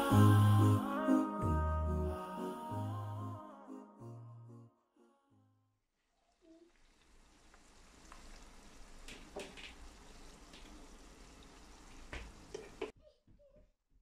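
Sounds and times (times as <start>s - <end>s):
onions sizzling in oil: 6.7s - 12.8s.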